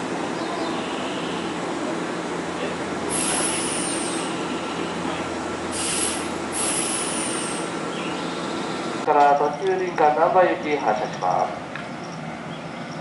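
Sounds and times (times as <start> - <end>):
electric train equipment hum: 0.0 - 9.2
air hissing: 3.1 - 4.8, 5.7 - 7.8.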